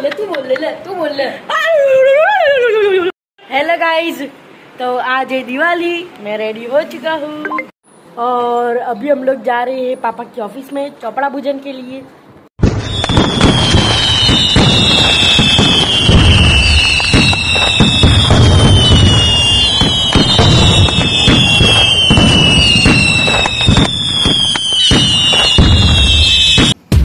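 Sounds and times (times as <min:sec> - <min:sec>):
fireworks crackling and popping: 0:12.6 - 0:26.8
fireworks falling whistles: 0:12.6 - 0:27.0.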